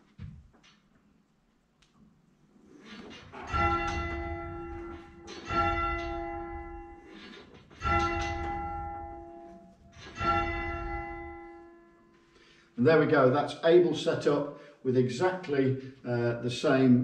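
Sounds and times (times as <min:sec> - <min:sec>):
church bell ringing: 0:03.3 - 0:13.3.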